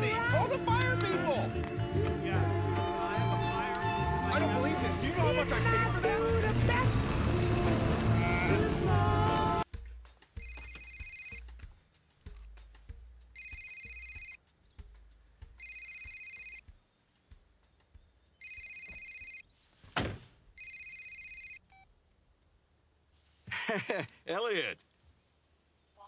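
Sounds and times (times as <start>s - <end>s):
phone trilling ringtone: 10.4s - 11.5s, 13.3s - 14.4s, 15.6s - 16.6s, 18.4s - 19.4s, 20.6s - 21.6s.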